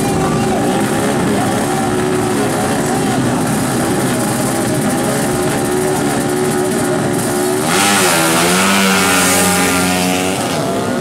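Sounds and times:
motorcycles revving and accelerating: 0.0 - 11.0.

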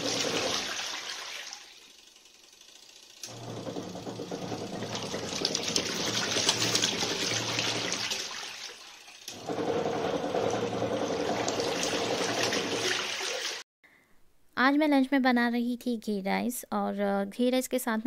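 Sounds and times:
water churning and sloshing: 0.0 - 1.8, 3.6 - 13.6
washing machine motor hum: 0.0 - 13.6.

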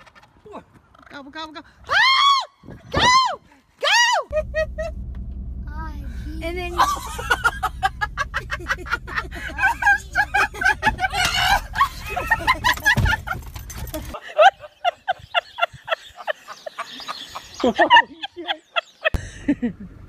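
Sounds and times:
steady low hum: 4.3 - 14.1.

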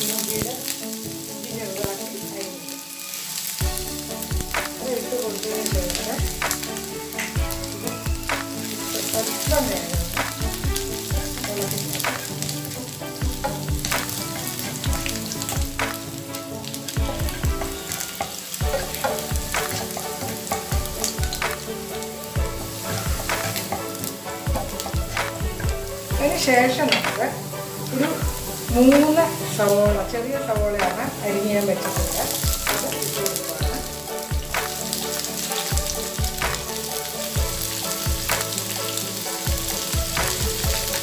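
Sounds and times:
garlic sizzling in oil: 0.0 - 41.0
spatula scraping and tapping pan: 5.7 - 16.1, 16.9 - 27.3.

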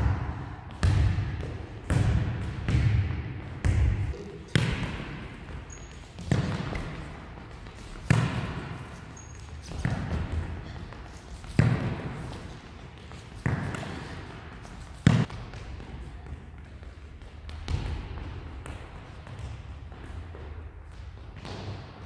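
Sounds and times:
football kicked thuds echoing: 0.0 - 5.3.

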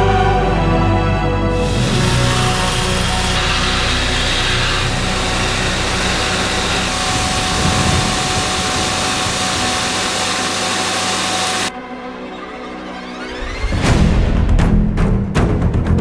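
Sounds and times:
belt grinder grinding steel: 1.5 - 11.7.

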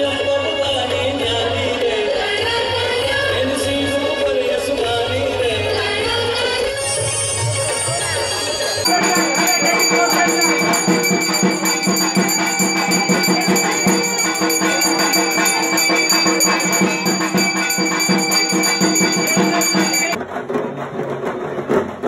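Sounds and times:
shaken percussion: 6.8 - 22.0
held drone tones: 8.9 - 20.2.

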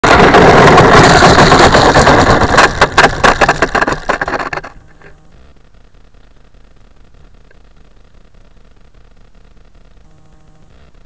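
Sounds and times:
faint hiss: 4.7 - 11.0.

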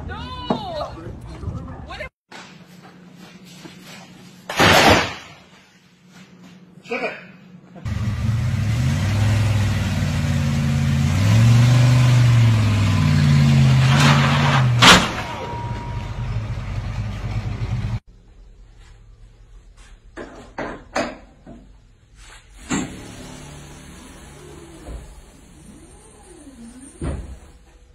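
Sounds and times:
loud sharp bang: 4.5 - 5.4, 14.8 - 15.8
car engine revving: 7.9 - 15.3.

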